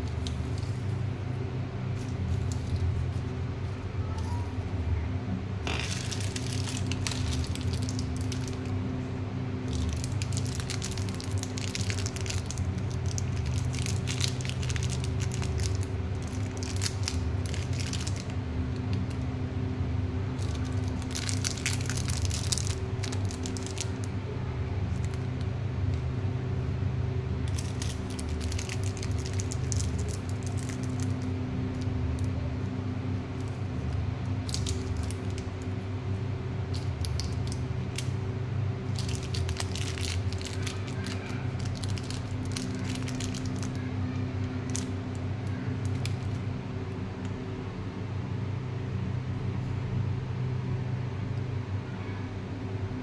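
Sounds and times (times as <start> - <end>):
plastic wrappers crinkling: 0.0 - 1.0, 2.0 - 3.3, 5.7 - 8.8, 9.6 - 19.2, 20.4 - 24.1, 24.9 - 25.5, 27.4 - 32.4, 33.4 - 35.7, 36.7 - 38.2, 38.8 - 46.5
steady low hum: 0.0 - 53.0.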